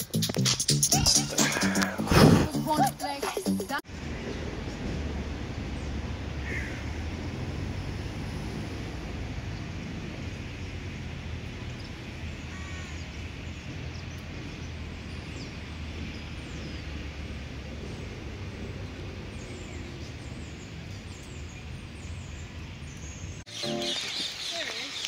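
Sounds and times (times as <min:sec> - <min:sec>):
crow calls: 0:06.4 - 0:07.0, 0:12.5 - 0:13.0.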